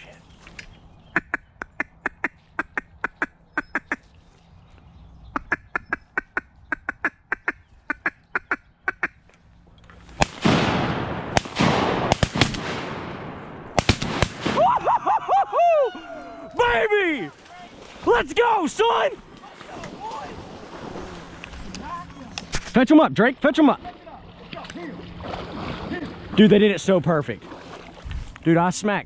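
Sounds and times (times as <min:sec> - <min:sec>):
duck quacking: 0:01.1 - 0:04.1, 0:05.3 - 0:09.2
shotgun shots echoing: 0:10.2 - 0:14.7.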